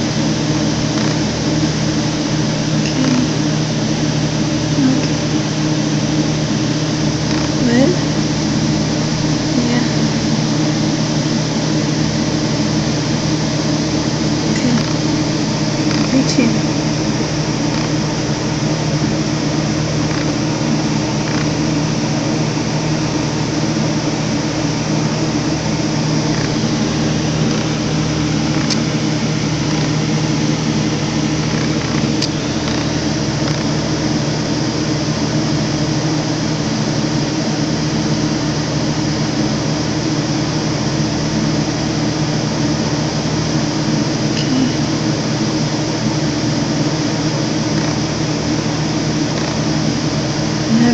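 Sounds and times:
mechanical hum: 0.0 - 50.9.

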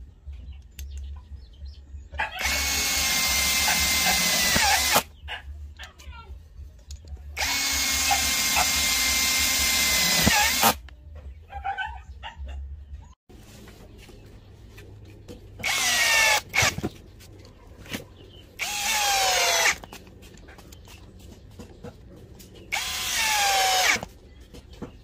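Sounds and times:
drill driving screws into wood: 2.4 - 5.1, 7.4 - 10.8, 15.6 - 16.8, 18.6 - 19.8, 22.7 - 24.1.

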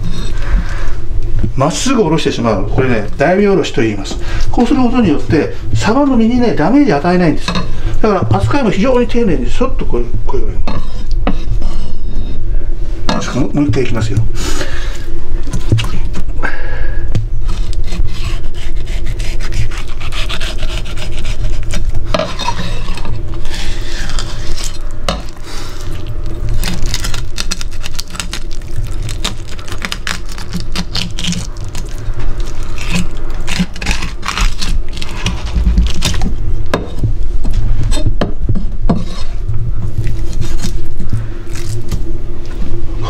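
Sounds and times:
knife scraping fish bones: 17.4 - 26.0, 29.2 - 36.2, 38.6 - 39.4.

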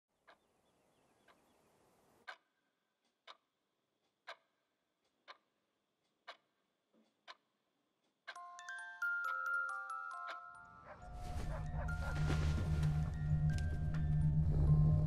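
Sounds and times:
alarm clock ticking: 2.3 - 6.6, 8.1 - 11.0.

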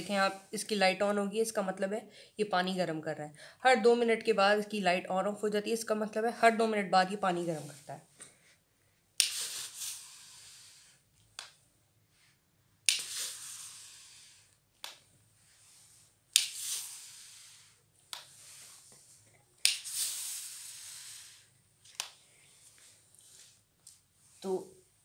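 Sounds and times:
steamer puffing steam hiss: 13.0 - 14.5, 15.6 - 18.8, 19.8 - 21.5.

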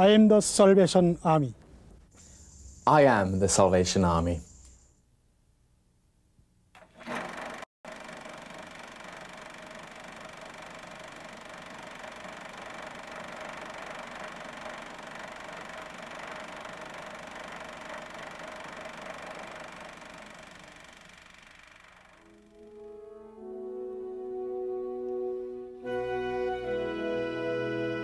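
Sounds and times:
film projector whirring: 6.8 - 22.5.

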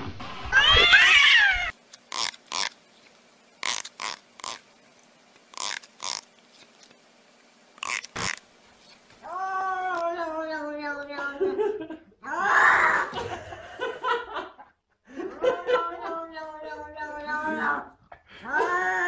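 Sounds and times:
cat meowing: 0.5 - 1.8.

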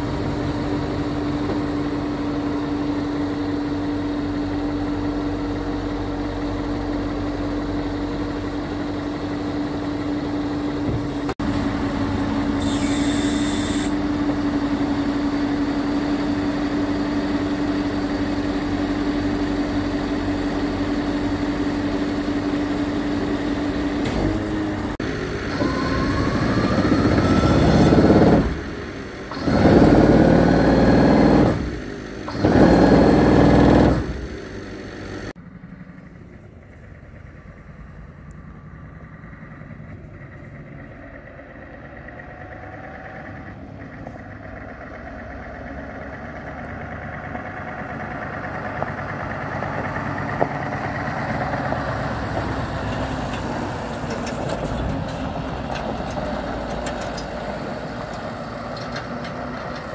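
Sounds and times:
rising whine: 0.0 - 29.0
truck engine and hydraulics hum: 0.0 - 59.9.

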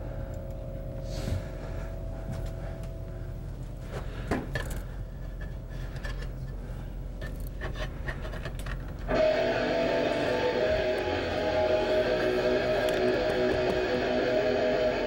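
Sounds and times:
low room hum: 0.0 - 15.0
guitar music over speakers: 9.1 - 15.0.

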